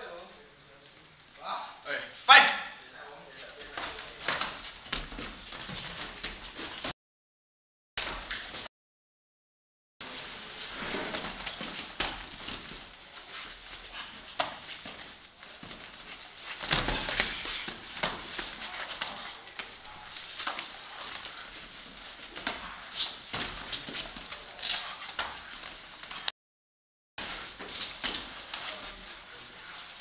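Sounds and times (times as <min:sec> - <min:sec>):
bodies scuffling on mats: 0:03.3 - 0:06.9, 0:10.0 - 0:26.3, 0:27.2 - 0:30.0
thumps and slaps: 0:16.5 - 0:19.8.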